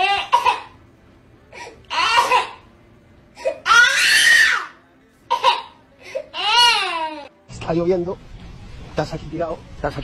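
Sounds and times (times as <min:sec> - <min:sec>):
baby crying: 0:00.0 - 0:00.7, 0:01.6 - 0:02.7, 0:03.4 - 0:07.3.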